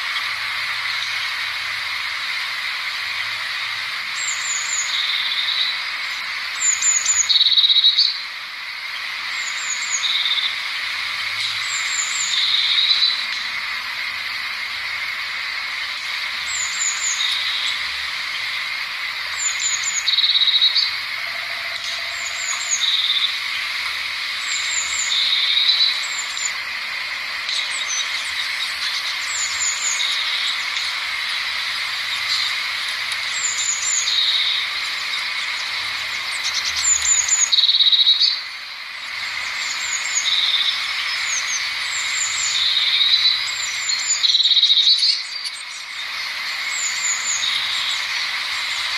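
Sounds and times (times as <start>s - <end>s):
high-pitched background chorus: 15.4s - 38.4s.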